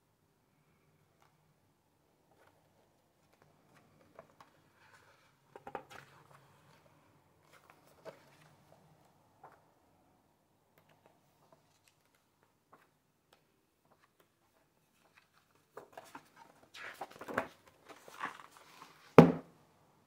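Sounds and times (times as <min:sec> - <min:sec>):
paper pages rustling: 0:02.3 - 0:08.8, 0:11.4 - 0:13.0, 0:13.8 - 0:19.2.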